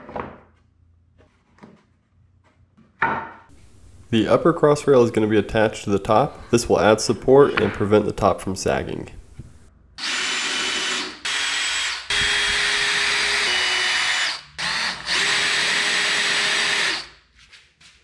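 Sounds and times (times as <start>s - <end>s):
cordless drill whining: 10.0s - 17.1s.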